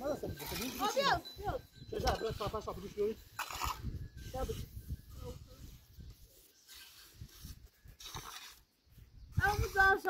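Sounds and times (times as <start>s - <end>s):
tool scraping wet mortar: 2.1s - 8.8s.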